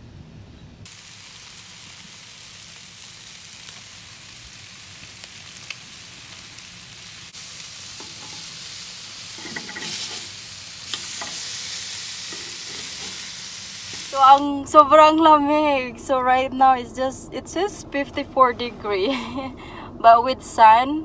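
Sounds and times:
chicken sizzling on grill: 0.8s - 14.6s
metal tongs scraping grate: 8.0s - 8.5s, 9.3s - 11.6s, 12.2s - 13.3s.

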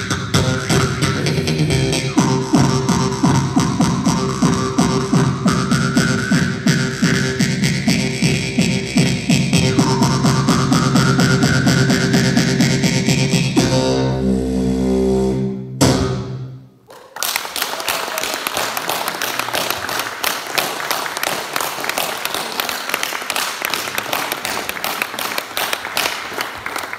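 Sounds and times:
beatboxing over bass tones: 0.0s - 16.5s
audience applauding: 16.9s - 26.9s.

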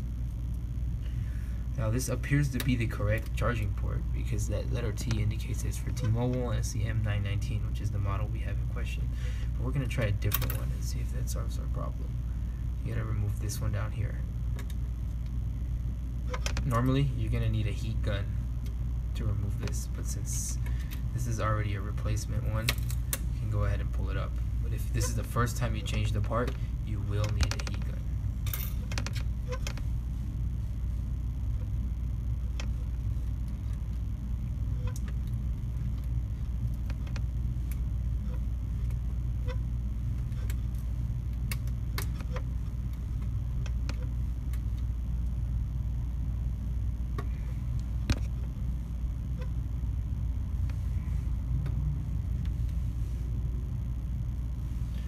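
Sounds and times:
steady low rumble: 0.0s - 55.0s.

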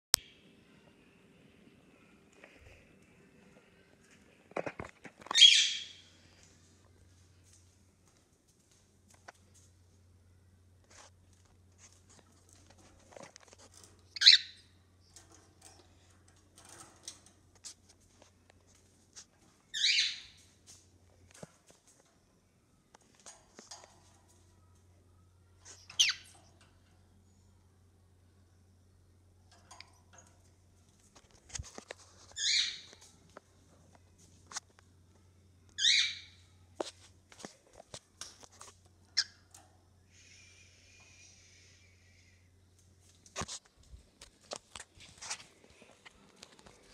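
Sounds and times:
faint rustling and clicks: 6.2s - 14.2s, 14.9s - 19.7s, 20.4s - 27.2s, 29.2s - 35.8s, 36.7s - 40.0s, 42.5s - 46.9s.

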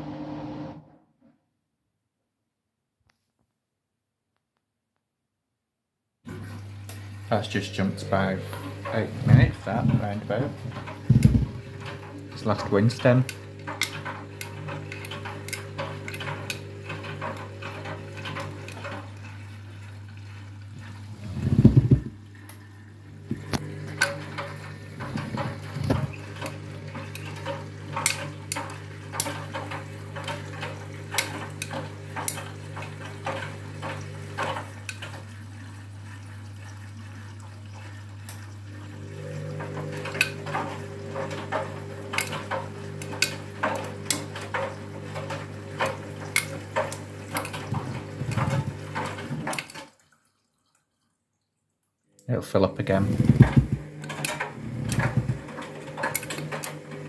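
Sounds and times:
washing machine motor hum: 0.0s - 0.9s, 6.3s - 50.0s, 52.3s - 57.0s
water sloshing: 6.3s - 51.2s
clicking and clattering against drum: 8.6s - 19.2s, 23.3s - 35.2s, 39.6s - 49.9s, 53.0s - 57.0s.

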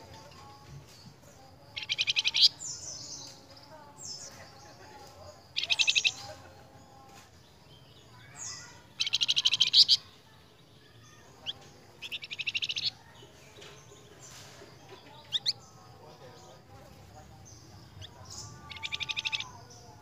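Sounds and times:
songbird trilling: 1.7s - 4.6s, 5.5s - 6.4s, 7.7s - 10.2s, 10.9s - 15.8s, 17.4s - 20.0s.

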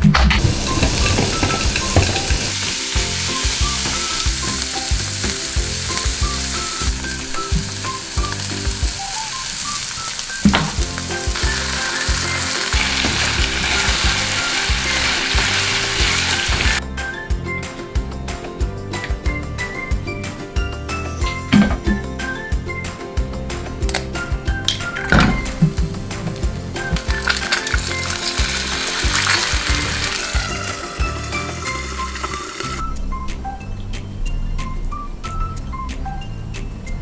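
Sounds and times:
meat sizzling in a frying pan: 0.5s - 16.8s, 25.0s - 32.8s.

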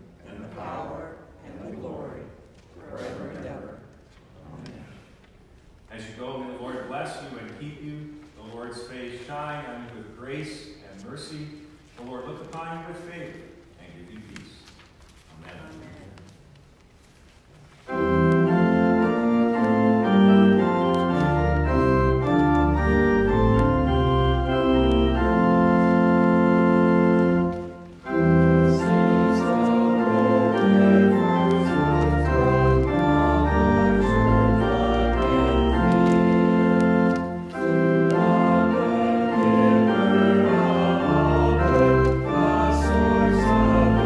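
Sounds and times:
pipe organ playing chords: 17.9s - 44.0s.

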